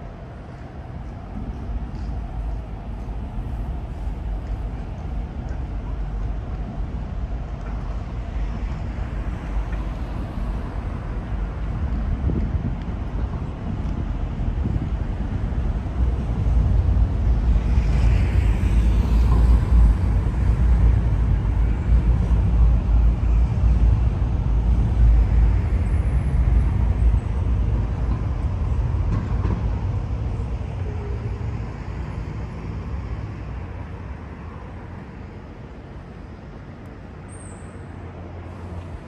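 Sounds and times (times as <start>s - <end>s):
city traffic rumble: 0.0s - 39.0s.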